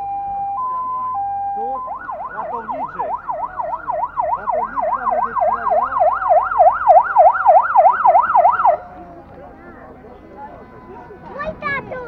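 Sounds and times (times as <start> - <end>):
electronic siren yelping: 0.0 - 8.8.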